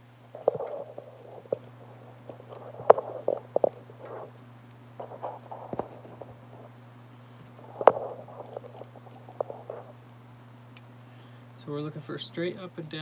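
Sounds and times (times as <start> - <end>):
steady low hum: 0.0 - 13.0
rubbing and shuffling: 0.3 - 4.4, 5.0 - 6.8, 7.5 - 10.0.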